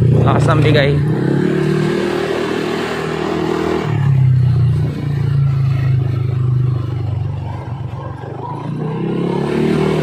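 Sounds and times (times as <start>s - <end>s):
scooter engine running: 0.0s - 10.0s.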